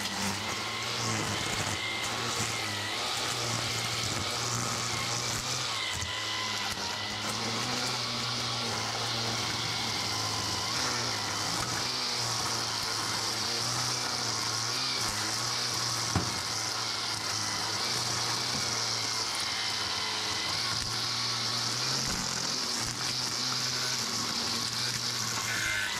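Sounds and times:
string trimmer running: 0:00.0 - 0:25.9
nut falling with a thump: 0:16.1 - 0:16.4.

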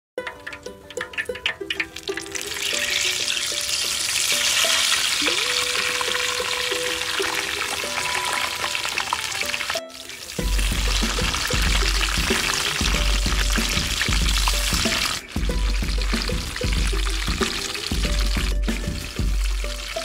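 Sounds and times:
background music: 0:00.2 - 0:20.0
oil sizzling loudly: 0:00.2 - 0:20.0.

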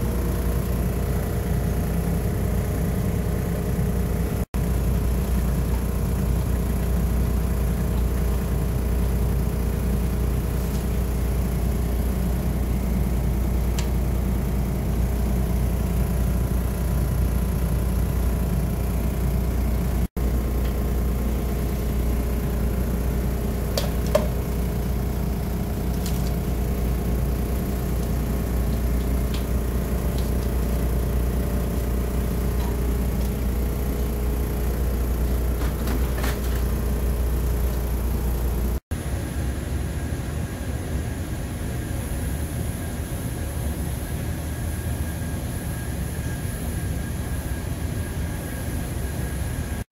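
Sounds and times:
low machine drone: 0:00.0 - 0:38.8.

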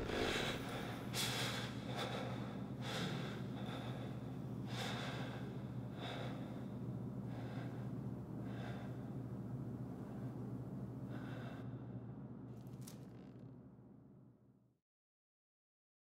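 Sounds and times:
person gasping breaths: 0:00.0 - 0:09.2, 0:11.1 - 0:11.9
faint low hum: 0:00.0 - 0:14.7.

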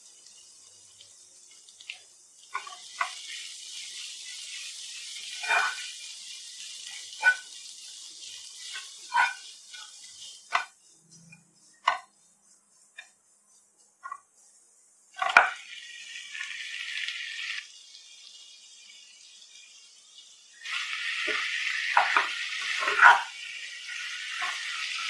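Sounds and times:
dishes clinking against sink: 0:21.3 - 0:23.3.

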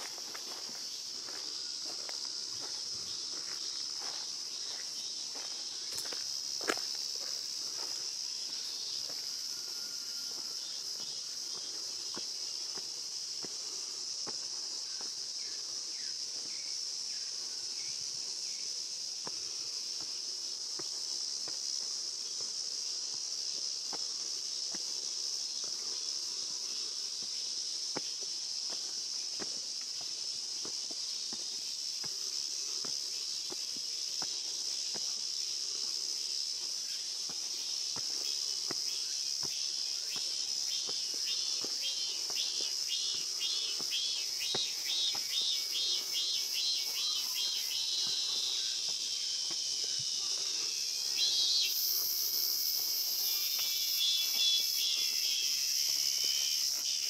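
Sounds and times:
footsteps on stone path: 0:00.0 - 0:17.2, 0:19.2 - 0:57.0
high insect buzz: 0:00.0 - 0:57.0
insect chorus: 0:00.0 - 0:57.0
insect pulsing rapidly: 0:35.2 - 0:57.0.

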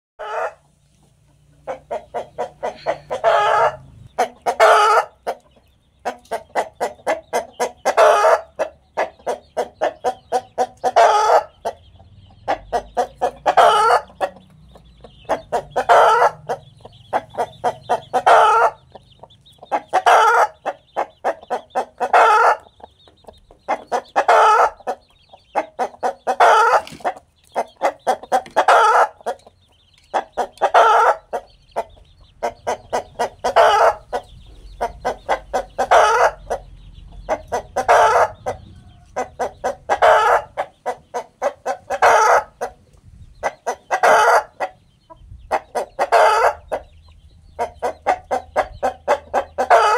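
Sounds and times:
rooster cackling: 0:00.2 - 0:00.6, 0:01.7 - 0:05.3, 0:07.1 - 0:08.6, 0:10.4 - 0:11.5, 0:12.7 - 0:14.4, 0:15.3 - 0:16.6, 0:17.2 - 0:18.8, 0:19.7 - 0:22.7, 0:23.9 - 0:25.0, 0:25.8 - 0:29.3, 0:30.6 - 0:31.4, 0:32.4 - 0:34.2, 0:35.0 - 0:36.6, 0:37.3 - 0:40.6, 0:41.4 - 0:42.6, 0:43.7 - 0:44.7, 0:45.8 - 0:46.7, 0:48.0 - 0:49.9.

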